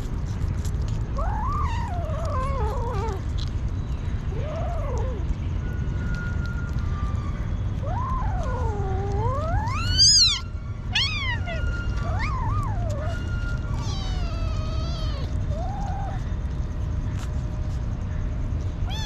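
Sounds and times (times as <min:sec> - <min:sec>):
steady low rumble: 0:00.0 - 0:19.0
kitten meowing: 0:07.9 - 0:16.2.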